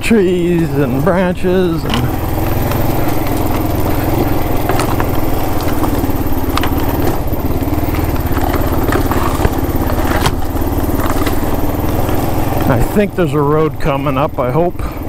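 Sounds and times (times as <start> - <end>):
motorcycle engine running: 0.0 - 15.0
clicks and knocks from stones: 1.8 - 12.8.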